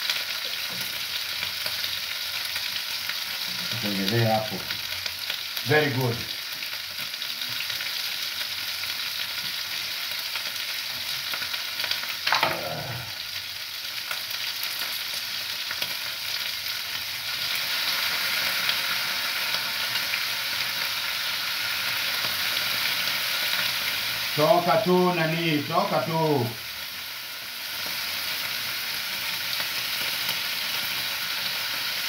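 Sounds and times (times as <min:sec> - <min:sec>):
liver sizzling in a pan: 0:00.0 - 0:32.0
short vocal sound: 0:12.3 - 0:13.2.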